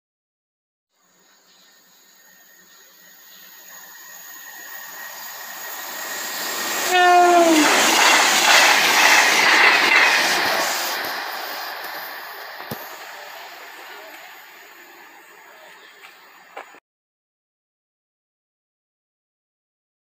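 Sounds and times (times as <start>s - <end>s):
diesel train passing: 3.1s - 16.8s
train horn: 6.6s - 8.3s.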